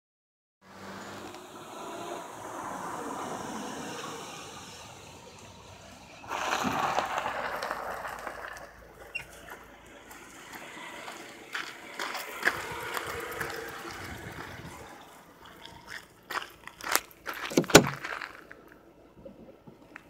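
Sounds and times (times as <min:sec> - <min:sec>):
tyres crunching on gravel: 0:05.9 - 0:18.8.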